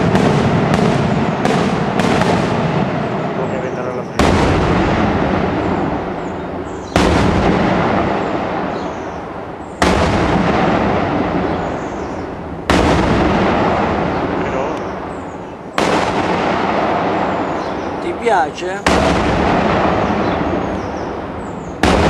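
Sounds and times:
firework shells bursting: 0.0 - 3.2, 6.8 - 17.7
rumbling echo: 0.0 - 22.0.

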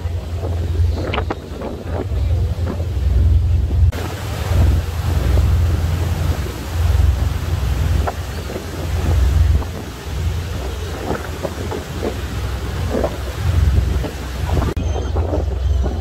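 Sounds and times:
boat engine running: 0.0 - 16.0
water rushing: 0.0 - 16.0
wind buffeting microphone: 0.0 - 16.0.

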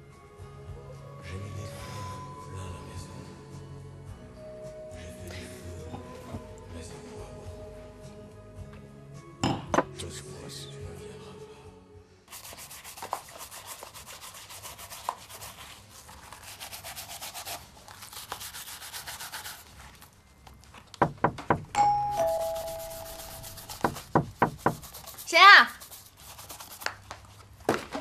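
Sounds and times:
shoe brush scrubbing leather: 12.3 - 19.9, 22.2 - 27.0
sharp knocks: 21.0 - 21.8, 23.8 - 24.8
two-note doorbell chime: 21.7 - 23.7.

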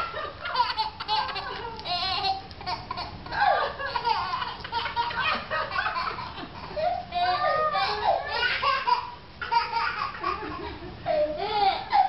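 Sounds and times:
people laughing: 0.0 - 1.8, 3.3 - 7.0, 10.1 - 11.2
young child laughing: 0.0 - 12.0.

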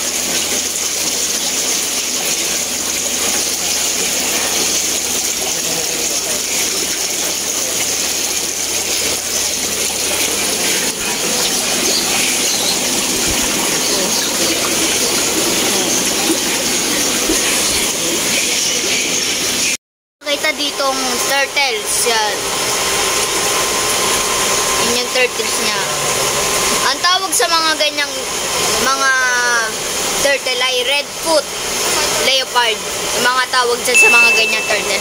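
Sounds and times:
aquarium water bubbling: 0.0 - 19.4.

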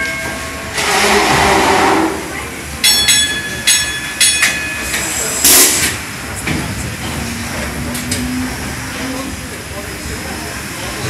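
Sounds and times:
ringing metallic clank: 2.8 - 5.9
steam engine running: 4.8 - 11.0.

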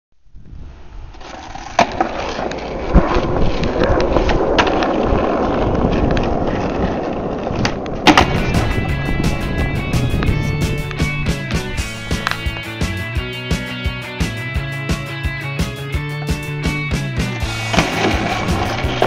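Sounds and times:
skateboard wheels rolling: 0.6 - 19.0
skateboard clacks: 1.2 - 12.7, 17.2 - 19.0.

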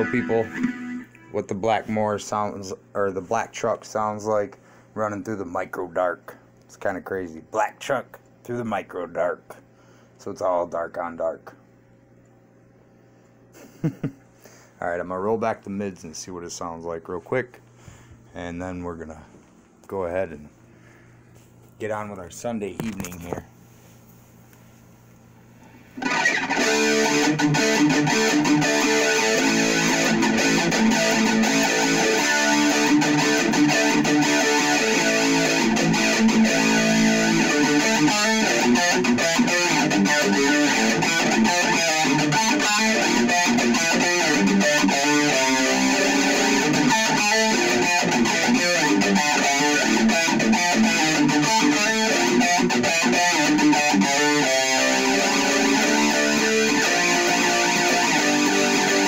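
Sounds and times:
distorted electric guitar riffs: 0.0 - 3.4, 26.0 - 59.0.

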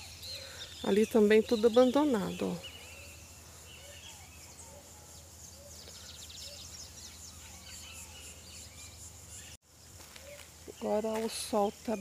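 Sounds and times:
bird trill: 0.0 - 9.6
birds chirping: 0.0 - 12.0
faint outdoor ambience: 0.0 - 12.0.

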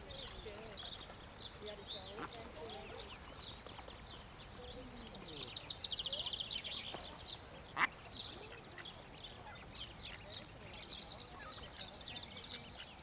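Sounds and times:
ducklings peeping: 0.0 - 4.0, 6.0 - 13.0.

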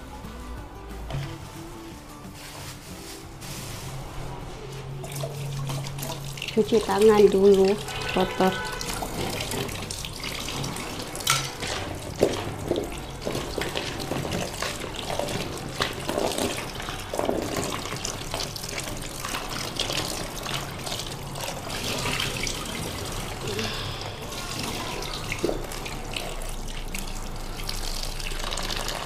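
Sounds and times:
tap water splashing into basin: 5.0 - 23.4, 24.4 - 29.0.

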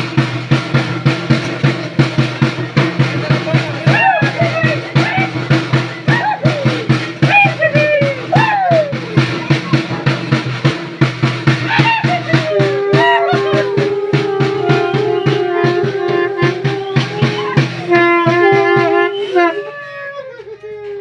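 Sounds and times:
wind instrument long notes: 0.0 - 10.0, 11.6 - 21.0
drum beating fast rhythm: 0.0 - 19.8.

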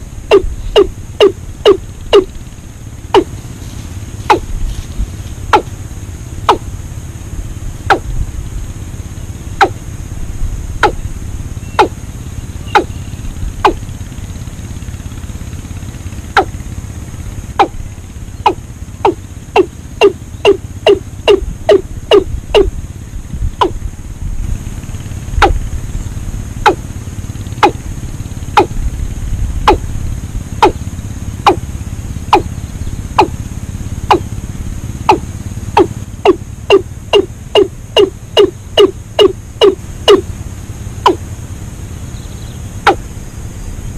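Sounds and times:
steady low rumble: 0.0 - 43.9
watercock calling sharp notes: 11.7 - 12.0, 12.7 - 13.0, 17.6 - 17.8.

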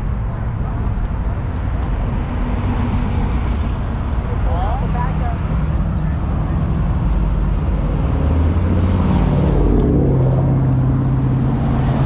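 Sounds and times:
loud vehicle engine revving: 2.0 - 12.0.

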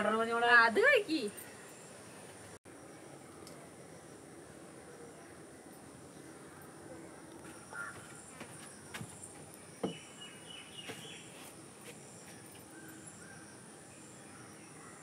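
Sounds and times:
faint insect hum: 0.0 - 15.0
bird chirping: 4.9 - 15.0
soft knocks: 7.9 - 10.0.

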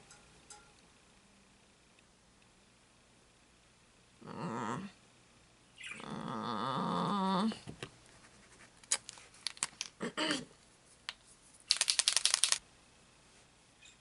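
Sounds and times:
handling clicks: 11.1 - 12.6
paint marker ball rattling: 11.7 - 12.6.

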